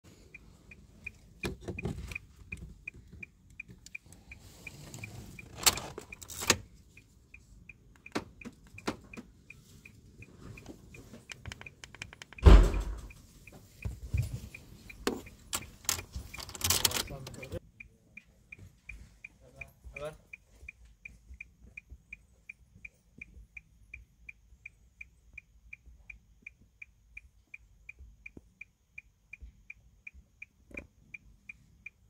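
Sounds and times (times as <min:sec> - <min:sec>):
car keys clicking and clattering: 0:01.0 - 0:04.1, 0:04.9 - 0:06.8, 0:07.9 - 0:09.4, 0:10.6 - 0:13.2, 0:14.5 - 0:17.6
heavy thump: 0:12.4 - 0:13.2
rapid electronic beeping: 0:14.2 - 0:17.9.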